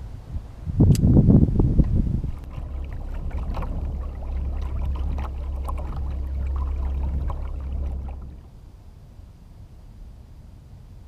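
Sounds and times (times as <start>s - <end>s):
wind rumble on microphone: 0.0s - 11.0s
small waves lapping against boat: 2.2s - 8.6s.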